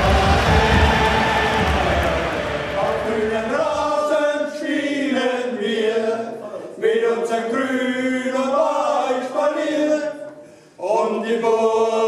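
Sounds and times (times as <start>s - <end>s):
group singing unaccompanied: 0.0s - 12.0s.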